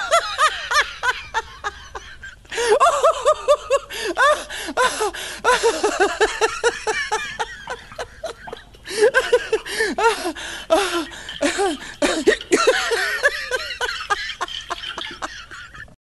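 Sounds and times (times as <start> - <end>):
person laughing: 0.0 - 15.9.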